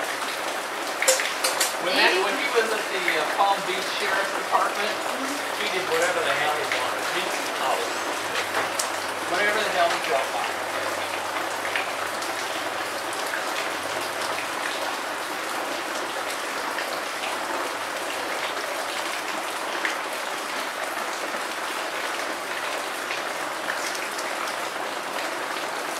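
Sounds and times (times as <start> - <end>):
steady rain falling: 0.0 - 25.9
single drops tapping: 1.1 - 1.8.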